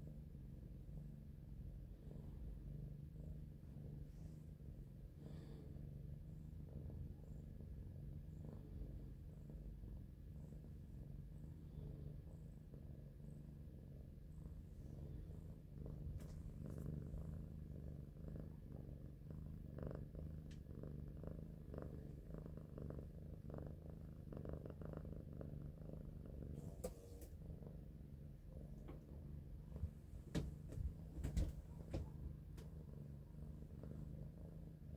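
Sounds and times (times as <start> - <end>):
cat purring: 0.0 - 34.9
light clicks and rustles: 29.7 - 32.7.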